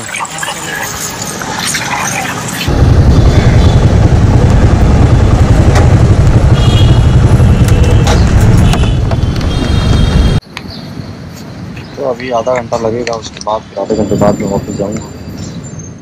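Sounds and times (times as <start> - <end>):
motorcycle engine rumbling: 2.7 - 10.4.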